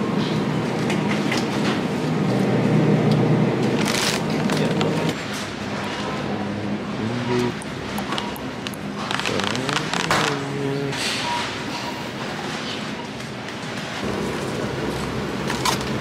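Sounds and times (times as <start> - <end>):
shopping cart rolling and rattling: 3.6 - 6.1, 8.1 - 10.5
plastic packaging crinkle: 3.8 - 5.1, 8.1 - 10.5.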